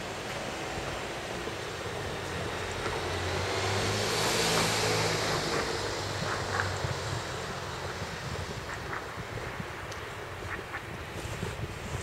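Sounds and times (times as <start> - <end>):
wind noise on microphone: 0.0 - 12.0
vehicle passing: 2.0 - 9.1.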